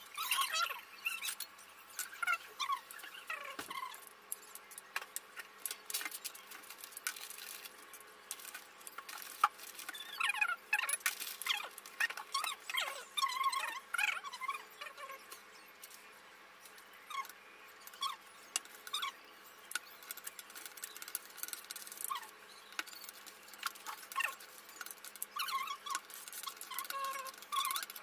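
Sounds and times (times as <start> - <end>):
high squeaks: 19.8 - 28.0.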